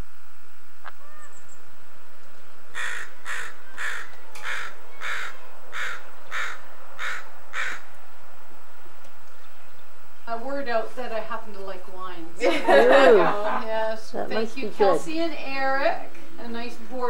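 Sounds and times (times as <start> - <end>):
crow cawing: 2.7 - 8.0.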